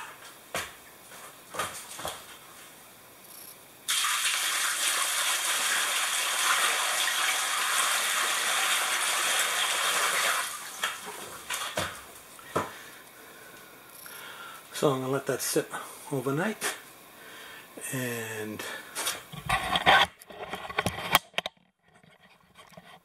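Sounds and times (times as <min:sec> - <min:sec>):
water pouring and splashing: 0:03.9 - 0:12.0.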